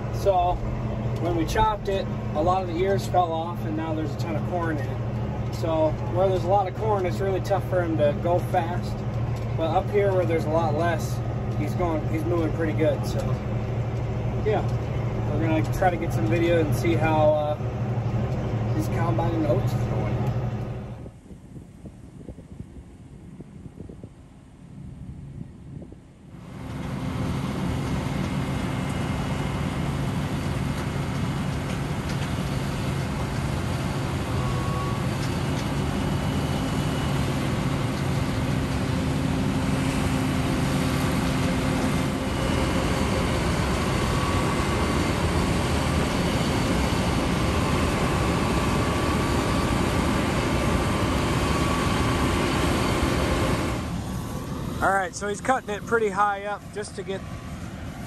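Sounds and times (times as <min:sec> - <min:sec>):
combine harvester droning: 0:00.0 - 0:58.0
machinery whining tones: 0:26.4 - 0:58.0.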